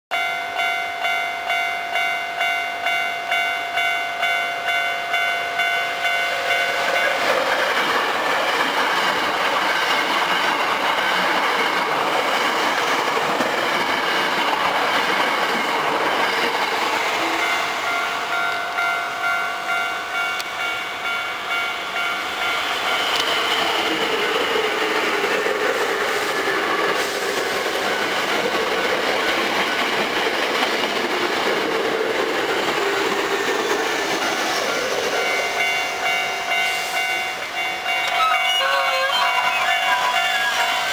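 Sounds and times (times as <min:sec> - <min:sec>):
level crossing bell ringing: 0:00.1 - 0:07.2, 0:35.2 - 0:40.9
train wheels on rails: 0:00.2 - 0:40.9.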